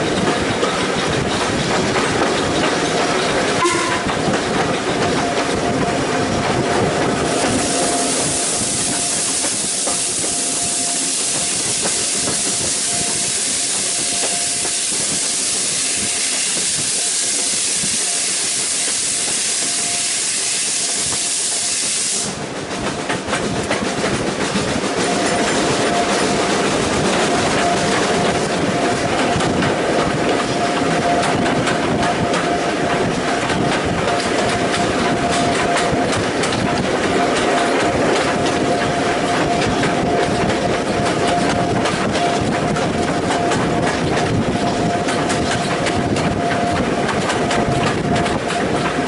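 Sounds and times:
locomotive steam hissing: 0.0s - 23.3s
rumble of standing train: 0.0s - 49.0s.

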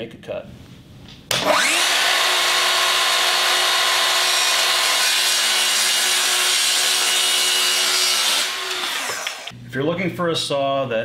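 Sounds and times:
circular saw cutting wood: 1.4s - 9.6s.

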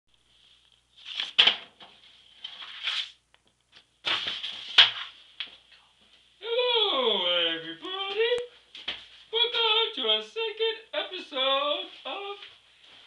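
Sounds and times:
rustling and handling noises: 0.1s - 6.3s.

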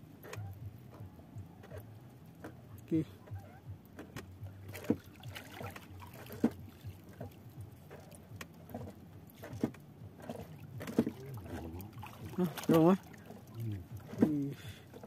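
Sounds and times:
water lapping at hull: 0.0s - 15.0s
short knocks on canoe: 3.2s - 15.0s.

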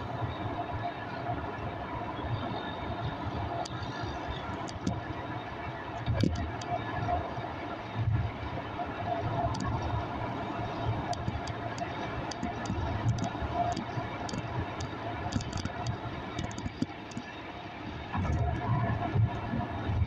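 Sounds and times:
light rattling ticks: 3.6s - 5.0s, 6.0s - 6.7s, 9.5s - 9.8s, 11.1s - 17.4s.

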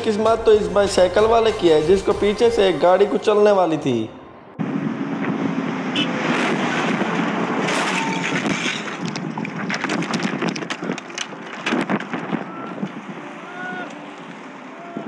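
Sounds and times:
wind and road noise: 0.0s - 15.0s
clattering and scraping clicks: 7.6s - 12.4s
bicycle crashing on tarmac: 7.6s - 12.6s.

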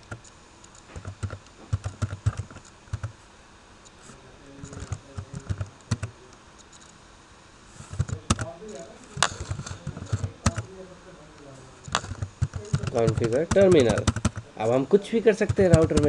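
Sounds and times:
keyboard key clicks: 0.0s - 3.1s, 4.6s - 6.1s, 7.9s - 8.5s, 9.2s - 10.7s, 11.9s - 14.4s, 15.4s - 16.0s.

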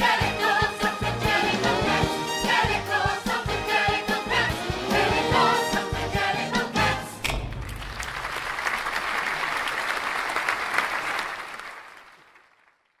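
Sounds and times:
audience applauding: 7.6s - 13.0s.

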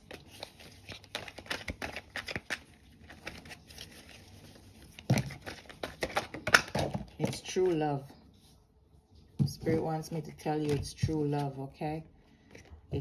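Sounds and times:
cards being shuffled: 0.0s - 7.8s.

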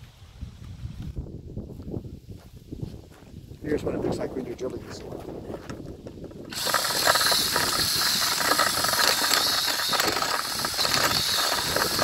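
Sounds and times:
auger rattling in dirt: 4.5s - 12.0s
drill motor whine: 6.5s - 12.0s.

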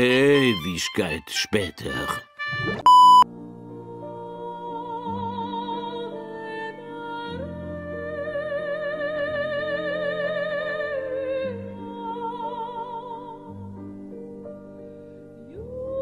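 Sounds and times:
slow background music: 0.0s - 16.0s.

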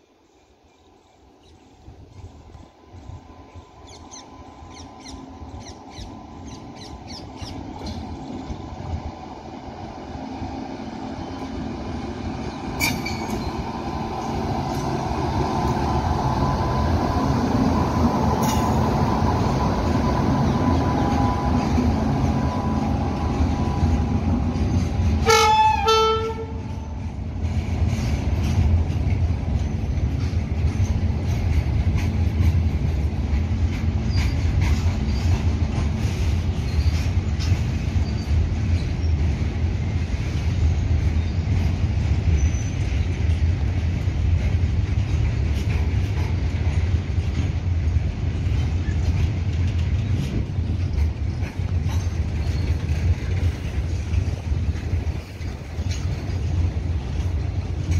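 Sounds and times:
train rolling on rails: 0.0s - 57.9s
locomotive whine: 1.9s - 57.9s
train horn blast: 25.0s - 27.0s.

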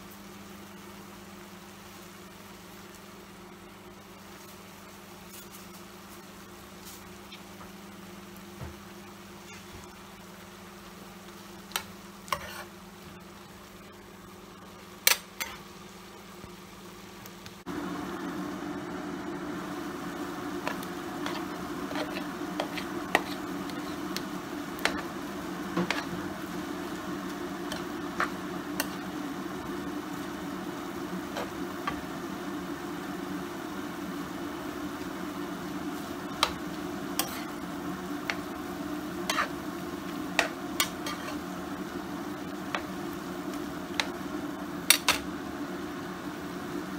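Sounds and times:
food sizzling in a frying pan: 0.0s - 46.9s
steady low hum: 0.0s - 46.9s.

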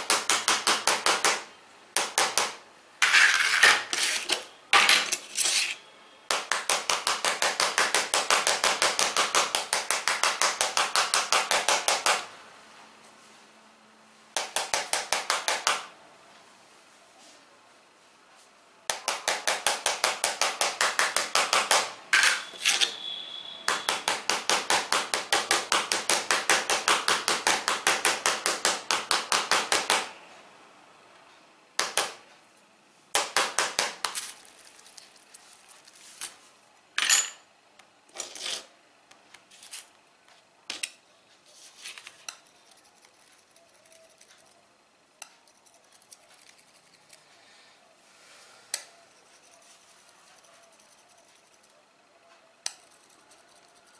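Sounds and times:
metal scratching on glass: 5.0s - 5.8s.

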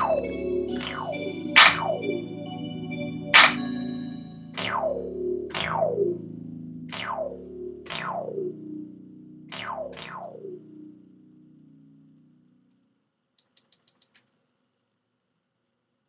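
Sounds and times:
synthesizer swooping sweeps: 0.0s - 6.1s
held low synth chord: 0.0s - 12.6s.

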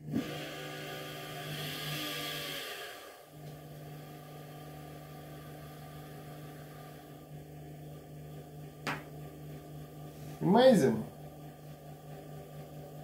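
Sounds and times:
washing machine motor humming: 0.0s - 13.0s.

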